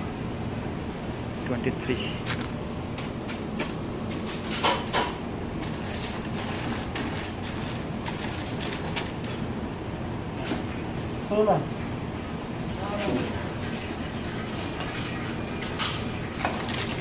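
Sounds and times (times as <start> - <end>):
steady background hum: 0.0 - 17.0
bags crinkling and rustling: 5.6 - 9.4.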